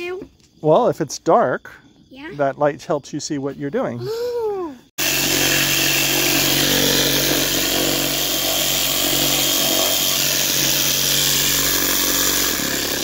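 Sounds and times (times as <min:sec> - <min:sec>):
reciprocating saw cutting wood: 0:05.0 - 0:13.0.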